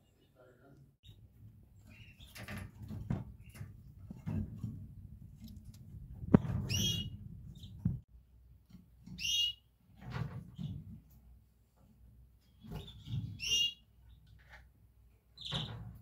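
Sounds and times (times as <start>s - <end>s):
canary calls: 6.7s - 7.8s, 9.2s - 9.7s, 12.8s - 13.8s.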